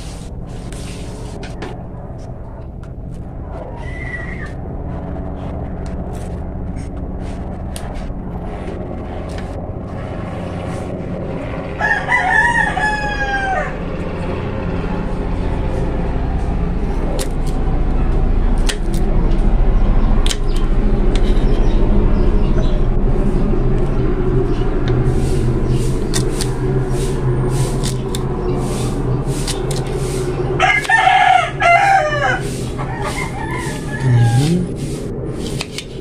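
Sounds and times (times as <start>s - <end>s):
low engine-like drone: 0.0s - 36.0s
rooster crowing: 11.7s - 14.0s, 30.6s - 34.9s.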